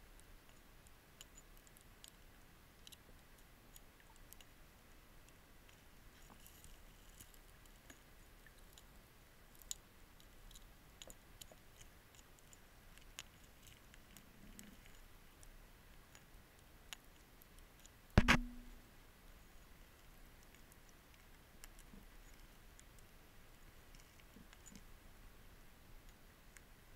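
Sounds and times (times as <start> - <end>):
faint underwater clicks and ticks: 0.0 - 26.9
loud ringing knock: 18.2 - 18.8.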